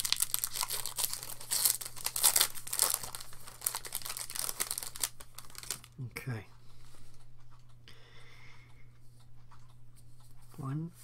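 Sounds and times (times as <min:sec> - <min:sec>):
foil wrapper crinkling: 0:00.0 - 0:06.0.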